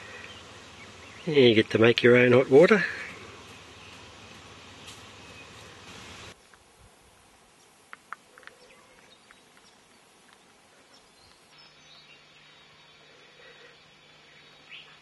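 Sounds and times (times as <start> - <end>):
bird chirps: 0.0 - 1.6, 3.0 - 6.4, 8.3 - 15.0
low steady hum: 0.0 - 7.8.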